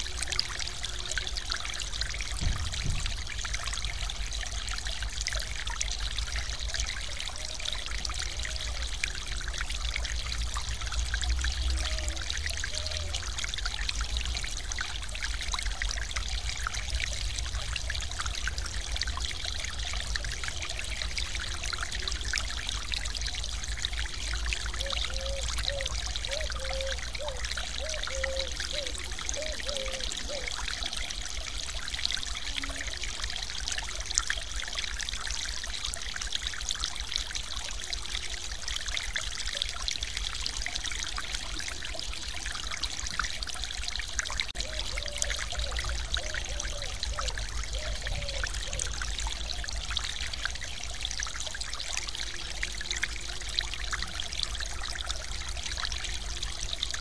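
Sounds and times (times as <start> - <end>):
low water rumble: 0.0 - 34.6.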